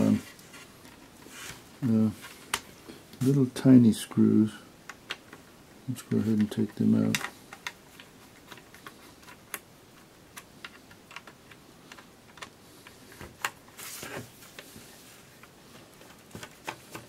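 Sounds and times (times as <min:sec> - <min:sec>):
scraping rustle: 0:00.0 - 0:02.6, 0:13.1 - 0:17.0.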